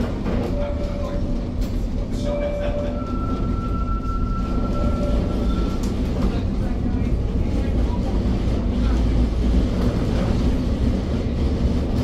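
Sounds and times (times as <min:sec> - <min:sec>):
tram wheels squealing: 0:00.0 - 0:06.6
tram wheels rumbling on rails: 0:00.0 - 0:12.0.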